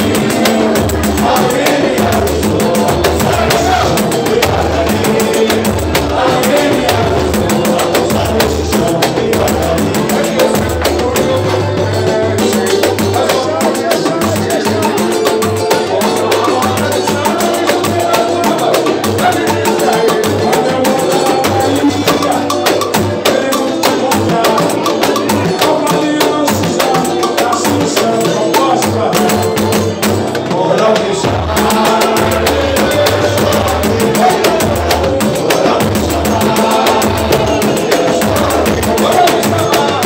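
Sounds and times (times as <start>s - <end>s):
samba percussion group: 0.0s - 40.0s
pandeiro jingles and strikes: 31.4s - 40.0s.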